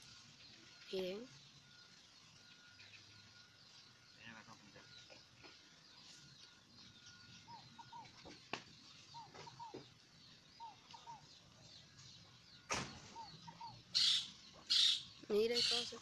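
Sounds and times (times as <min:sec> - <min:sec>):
faint birds chirping: 0:00.0 - 0:16.0.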